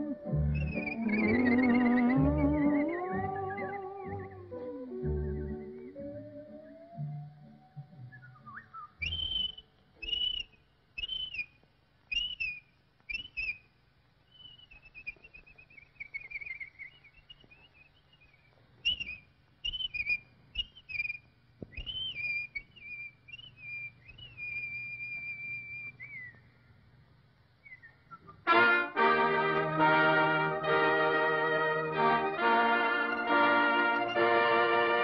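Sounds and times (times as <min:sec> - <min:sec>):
whistled bird chirps: 0:00.0 - 0:07.1, 0:08.0 - 0:26.6, 0:27.6 - 0:28.5
faint low hum: 0:00.0 - 0:35.0.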